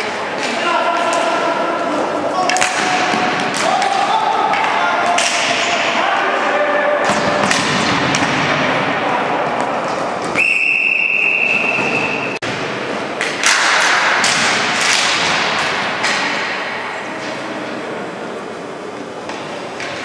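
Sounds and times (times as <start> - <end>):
sticks and ball clacking: 2.3 - 5.8, 13.2 - 16.6
whistle blast: 10.4 - 12.4.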